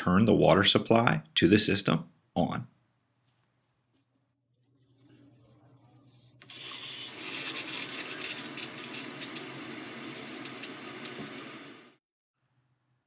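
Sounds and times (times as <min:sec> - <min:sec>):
water hissing through valve: 0:04.8 - 0:12.0.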